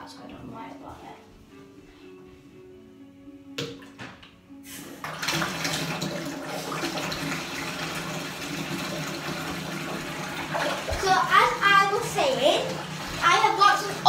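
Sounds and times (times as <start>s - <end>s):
water running into bathtub: 3.6s - 14.0s.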